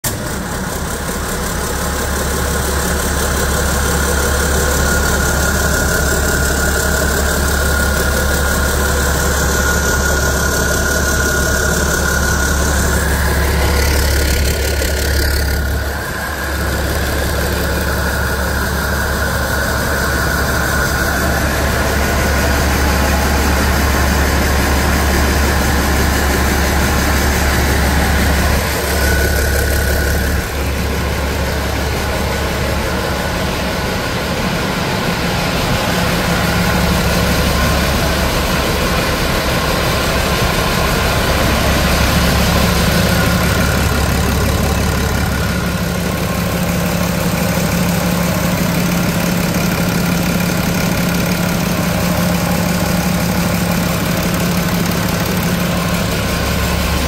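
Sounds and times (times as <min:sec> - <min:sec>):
diesel engine idling: 0:00.0 - 0:57.0
steady high whine: 0:00.0 - 0:57.0.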